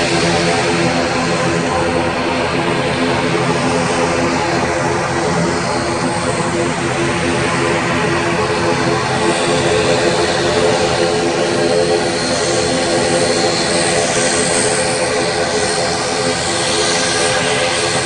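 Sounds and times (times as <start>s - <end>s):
propeller engines drone: 0.0s - 18.0s.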